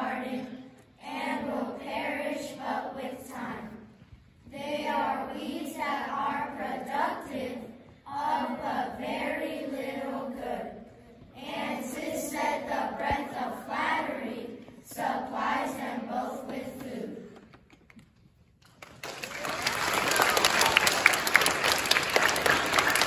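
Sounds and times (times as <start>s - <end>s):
children reciting in unison: 0.0s - 17.3s
audience applause: 18.6s - 23.0s.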